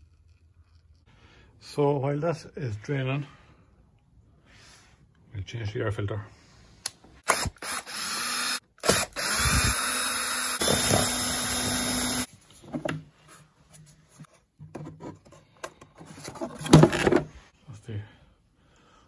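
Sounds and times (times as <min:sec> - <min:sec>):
power drill running: 0:07.2 - 0:12.3.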